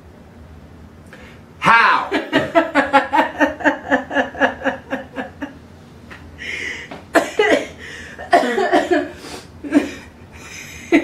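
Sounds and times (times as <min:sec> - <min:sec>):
woman laughing hard: 0:02.0 - 0:05.6, 0:08.2 - 0:11.0
breathy gasp: 0:06.4 - 0:06.9, 0:07.8 - 0:08.2.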